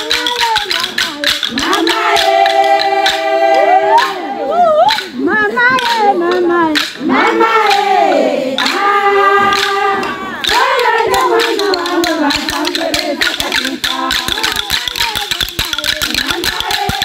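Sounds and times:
sharp beats: 0.0 - 17.0
group of voices chanting: 1.5 - 14.6.

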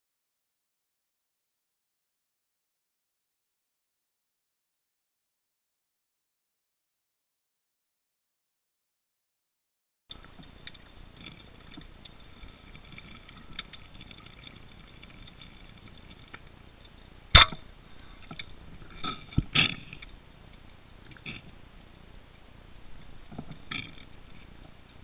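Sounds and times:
speargun firing crack: 17.3 - 17.7.

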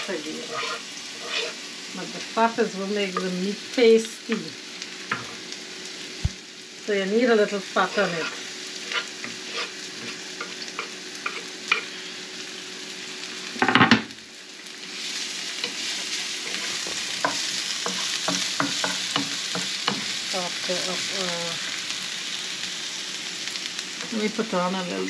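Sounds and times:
onions sizzling in oil: 0.0 - 25.0
wooden spatula scraping pan: 0.1 - 1.6, 7.8 - 11.9, 15.6 - 19.3.

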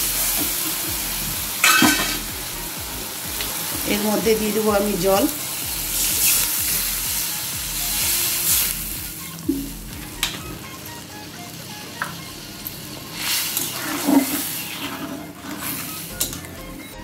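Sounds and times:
water hissing in hot pan: 0.0 - 16.6
metal spatula stirring in pan: 13.2 - 16.5.

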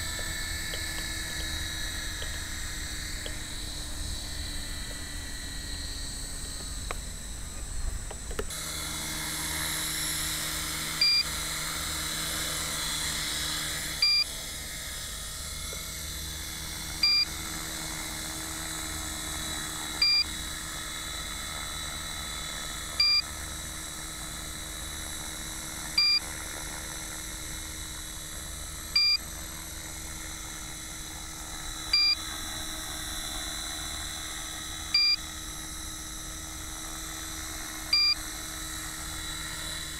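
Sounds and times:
rc helicopter motor whine: 0.0 - 39.9
low-battery alarm beeps: 10.9 - 11.4, 13.9 - 14.4, 17.0 - 17.4, 20.0 - 20.4, 23.0 - 23.4, 25.9 - 26.2, 28.9 - 29.2, 31.8 - 32.3, 34.9 - 35.4, 37.9 - 38.3.

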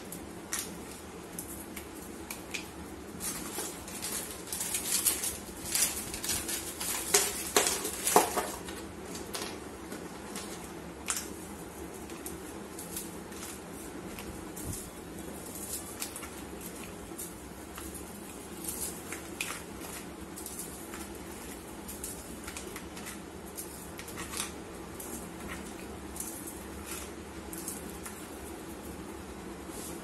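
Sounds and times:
biscuits snapping and crumbling: 0.0 - 30.0
pieces dropping into plastic bowl: 6.9 - 9.6.

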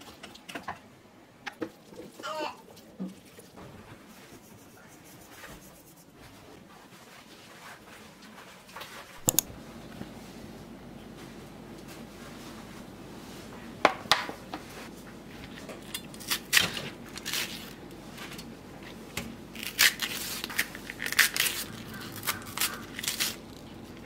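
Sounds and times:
sharp clicks: 9.2 - 9.5
vegetable stalks snapping and tearing: 16.1 - 17.8, 19.6 - 23.7.

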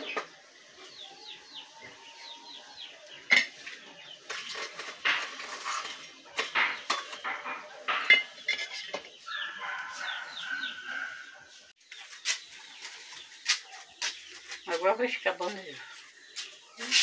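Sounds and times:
metal clank: 3.3 - 3.6, 4.3 - 9.0
metal utensil scraping pot lid: 3.3 - 3.7, 4.3 - 9.1.

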